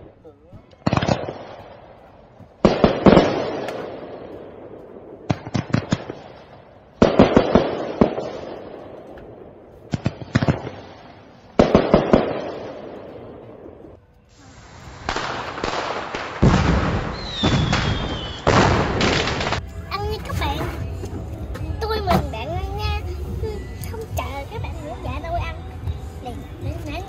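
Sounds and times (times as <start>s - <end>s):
fireworks cracking with echo: 0.8s - 20.9s.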